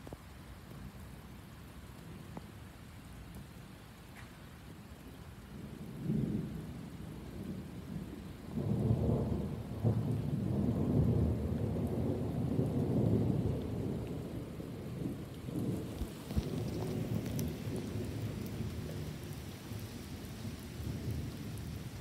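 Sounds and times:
rain on pavement: 0.0 - 22.0
rolling thunder: 7.4 - 22.0.

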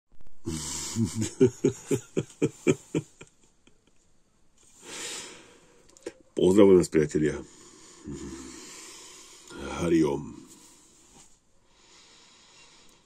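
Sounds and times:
man laughing: 0.5 - 3.9.

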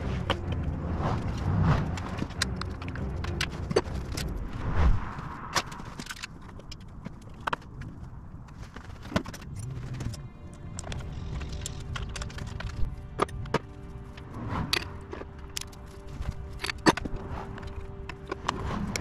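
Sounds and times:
low hum: 0.0 - 19.0
tools clicking and knocking: 5.6 - 8.0, 10.8 - 19.0.

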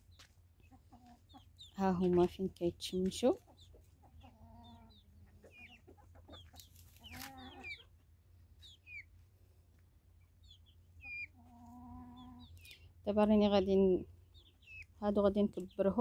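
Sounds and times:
chickens clucking: 0.0 - 16.0
chicks peeping: 0.0 - 16.0.

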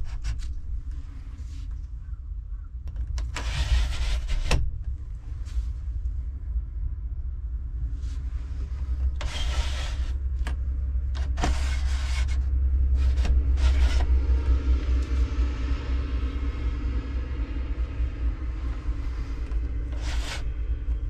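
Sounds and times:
steady low rumble: 0.0 - 21.0
window blind sliding: 3.4 - 4.6, 9.2 - 10.6, 11.2 - 12.4, 13.0 - 14.2, 19.0 - 20.5.

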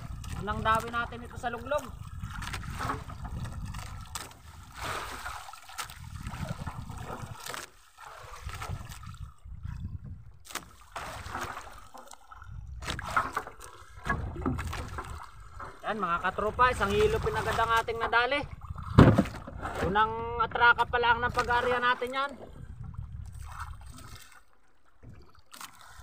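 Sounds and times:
sea water sloshing against hull: 0.0 - 26.0
sharp knocks: 18.9 - 19.5.

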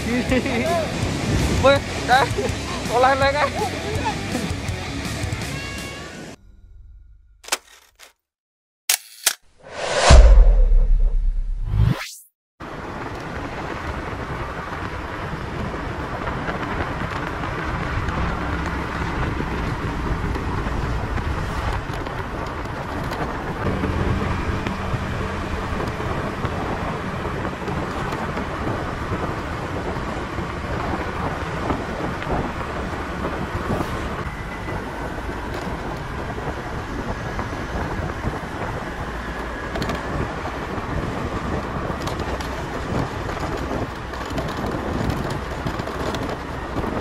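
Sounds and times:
wind noise on microphone: 0.0 - 4.1, 12.6 - 47.0
motorcycle engine running: 22.8 - 30.0.

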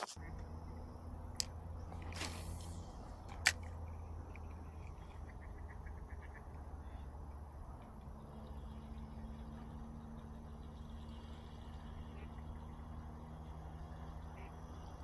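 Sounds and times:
steady low rumble: 0.0 - 12.4
fishing line swish: 1.9 - 3.6.

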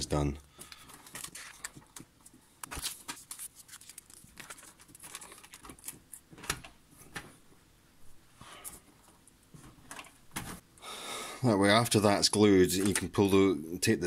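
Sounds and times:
tape rustling: 0.6 - 7.3.

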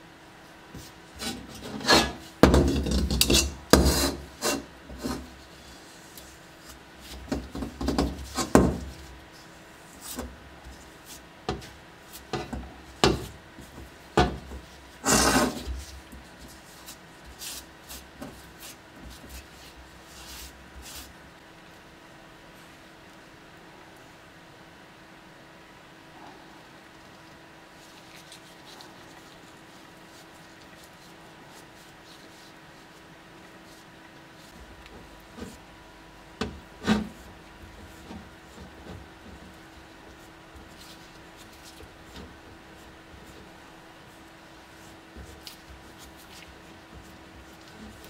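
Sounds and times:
plastic spreader scraping filler: 7.0 - 21.1.

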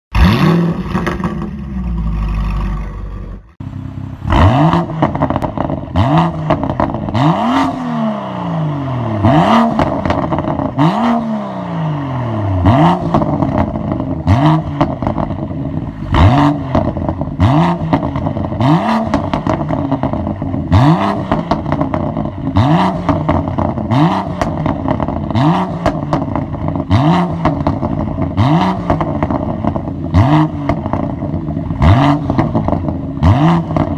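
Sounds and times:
car engine revving: 0.1 - 33.9
exhaust pops and crackles: 4.9 - 7.2, 16.7 - 33.9.

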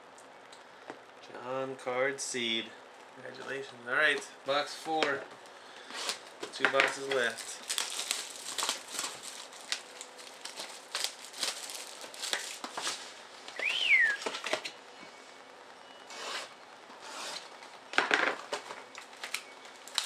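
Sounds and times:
cardboard and wrapping rustling: 5.8 - 14.8, 16.2 - 20.0.

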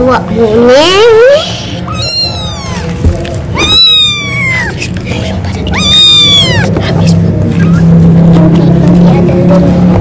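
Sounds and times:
kitten meowing: 1.9 - 5.0, 5.6 - 7.9.

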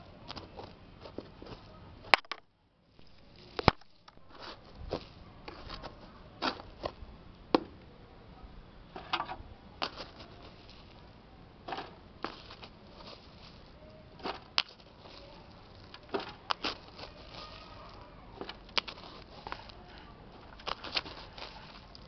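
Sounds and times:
hand digging through dry soil: 2.9 - 6.9, 9.8 - 11.1, 11.7 - 22.0
rustling of dry leaves: 2.9 - 7.1, 9.8 - 22.0
crackles and sharp clicks: 18.4 - 19.8.

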